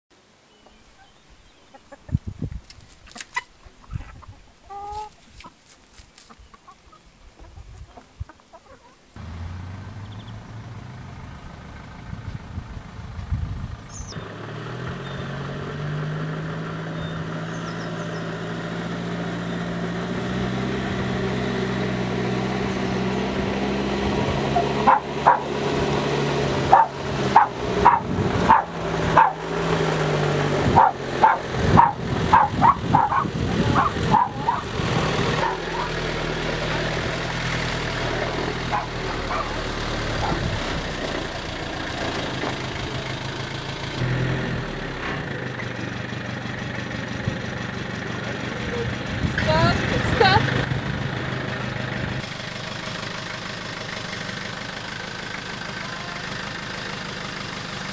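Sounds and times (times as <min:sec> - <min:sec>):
chicken clucking: 0:01.0 - 0:02.3, 0:03.0 - 0:09.0
pickup truck engine approaching: 0:09.2 - 0:57.9
dog barking: 0:24.6 - 0:25.5, 0:26.7 - 0:29.5, 0:30.8 - 0:34.7, 0:35.4 - 0:36.0, 0:38.7 - 0:39.6, 0:40.2 - 0:40.5.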